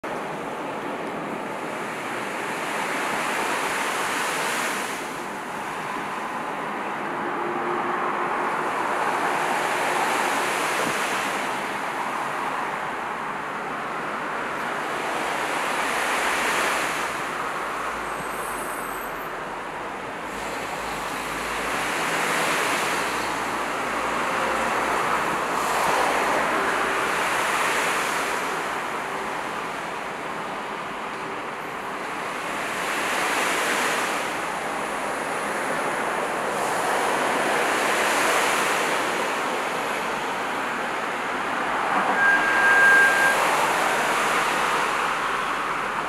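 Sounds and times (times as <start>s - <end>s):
waves washing: 0.2s - 7.2s, 8.3s - 18.6s, 20.0s - 46.0s.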